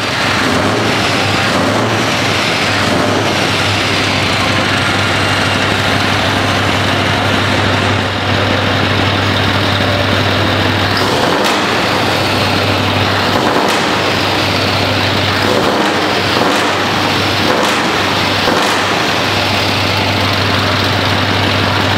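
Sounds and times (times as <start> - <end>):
diesel truck engine idling and revving: 0.0 - 21.9.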